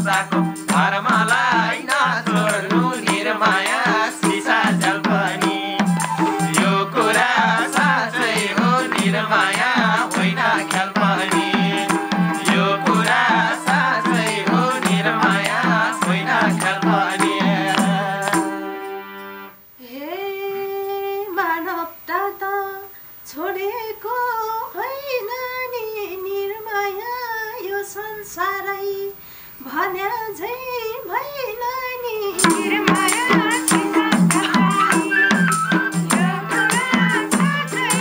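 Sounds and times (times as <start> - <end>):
hand drum: 0.0 - 18.7, 32.4 - 38.0
tambourine: 0.0 - 19.0, 32.3 - 38.0
people singing: 0.0 - 21.1, 31.6 - 38.0
hand clapping: 0.1 - 18.6, 32.4 - 38.0
harmonium drone: 1.7 - 19.6
woman singing long held notes: 19.8 - 38.0.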